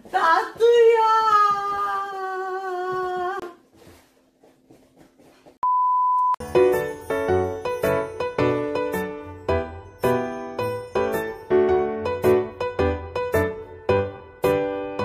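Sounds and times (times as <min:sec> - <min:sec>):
light chiming music: 0:06.4 - 0:15.0.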